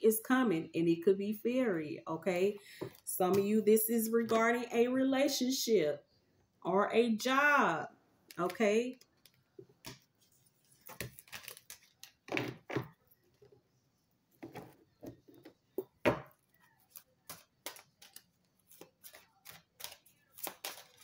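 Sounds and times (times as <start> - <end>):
cards being shuffled: 16.8 - 21.0.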